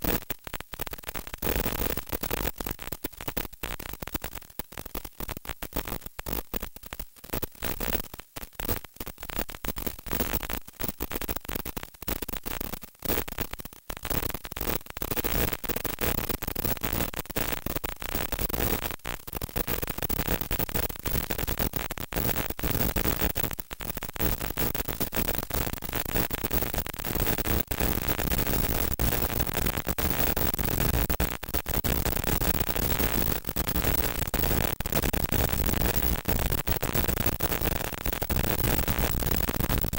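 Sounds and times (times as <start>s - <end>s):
radio static hiss: 16.6s - 39.9s.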